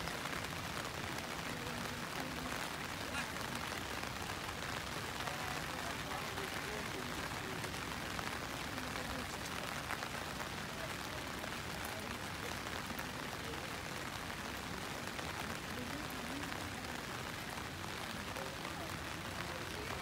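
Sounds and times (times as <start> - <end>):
outdoor background hiss: 0.0 - 20.0.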